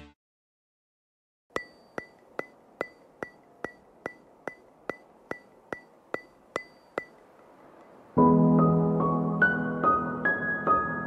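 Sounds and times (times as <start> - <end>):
ticks with ringing tone: 1.5 - 8.1.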